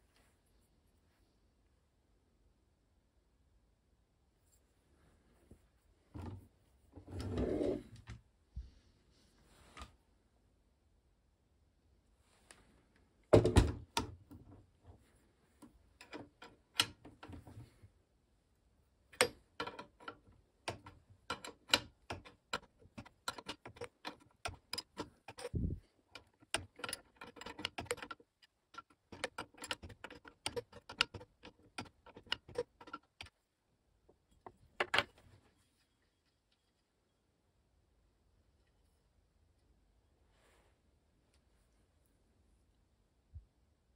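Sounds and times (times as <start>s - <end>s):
small metallic clicks and rattles: 16.0s - 17.4s, 19.1s - 33.4s.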